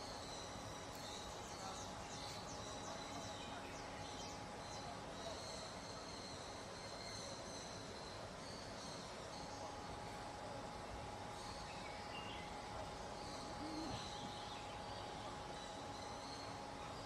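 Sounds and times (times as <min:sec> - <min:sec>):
insects trilling: 0:11.4 - 0:16.4.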